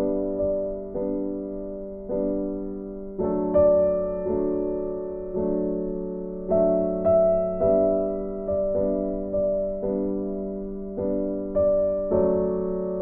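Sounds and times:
soft piano chords: 0:00.0 - 0:13.0.

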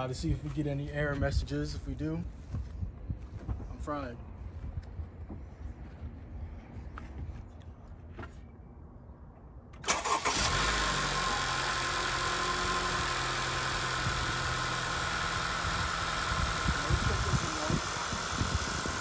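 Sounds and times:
car engine starting and idling: 0:09.6 - 0:19.0.

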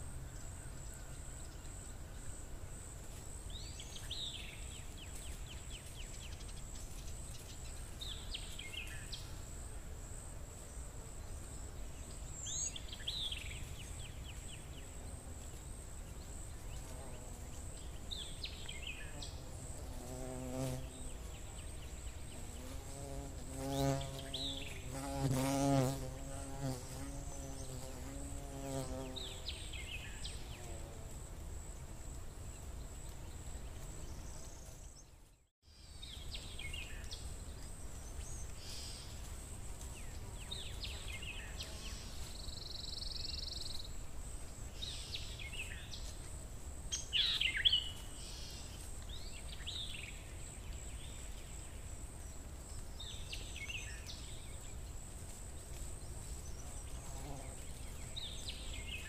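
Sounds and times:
insect buzzing: 0:16.6 - 0:32.2, 0:55.3 - 0:59.0.

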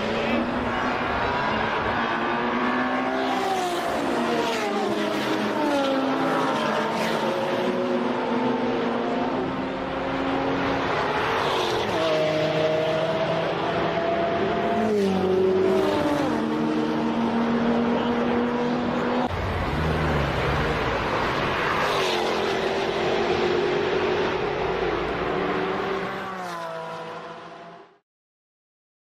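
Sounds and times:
car engine passing and pulling away: 0:18.7 - 0:27.7.

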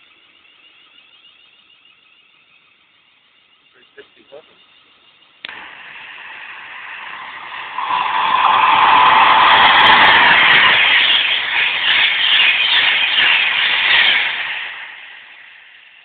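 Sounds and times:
rhythmic train wheel clatter: 0:00.0 - 0:16.0
electric train rushing past: 0:05.5 - 0:16.0.

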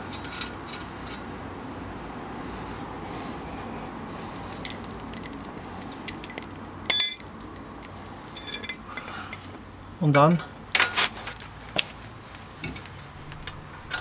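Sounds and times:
metal hand tools clinking: 0:05.2 - 0:07.5, 0:08.3 - 0:09.5.

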